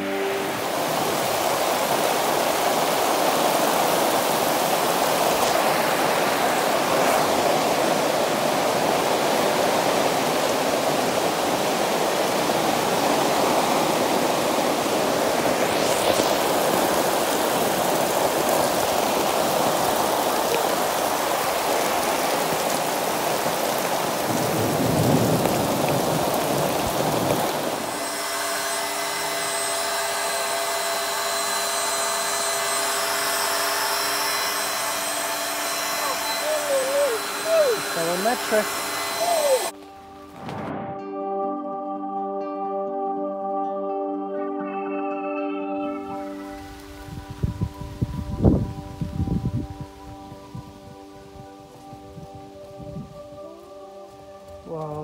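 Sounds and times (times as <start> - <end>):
heavy rain on tent: 0.0 - 40.6, 46.5 - 55.0
electric air pump humming: 13.2 - 20.3, 27.4 - 39.7.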